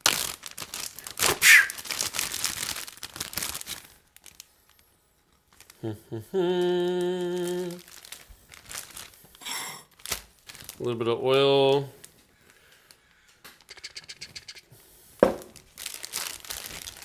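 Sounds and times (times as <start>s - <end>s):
plastic bag crinkling: 0.0s - 5.8s, 6.9s - 13.0s, 15.2s - 17.0s
man humming one note: 6.3s - 7.8s.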